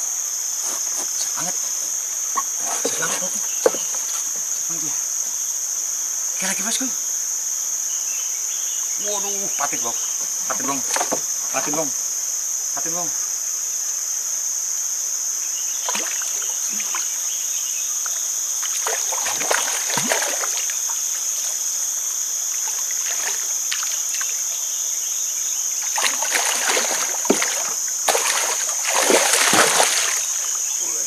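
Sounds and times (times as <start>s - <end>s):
high insect drone: 0.0s - 31.0s
fish splashing in water: 15.8s - 17.2s, 18.6s - 21.5s, 22.6s - 24.4s, 25.8s - 30.5s.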